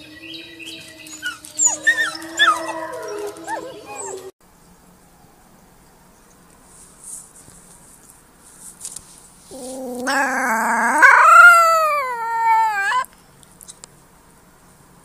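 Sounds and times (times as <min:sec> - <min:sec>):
wolf pup howling: 0:01.1 - 0:04.3, 0:09.5 - 0:13.1.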